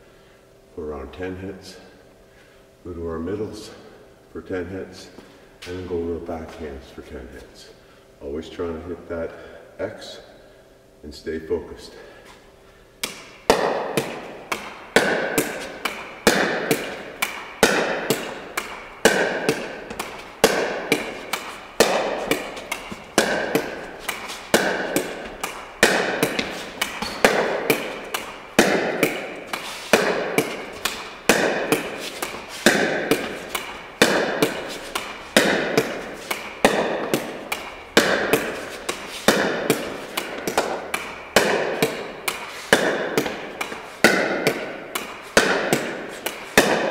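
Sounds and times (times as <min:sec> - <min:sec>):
paddle hitting plastic ball: 0:13.0 - 0:46.9.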